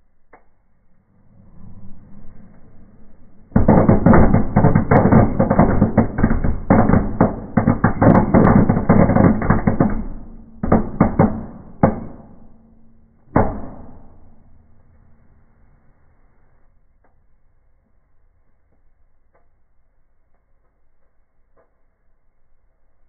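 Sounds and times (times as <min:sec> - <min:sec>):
firework crackling bangs: 0:03.6 - 0:11.8.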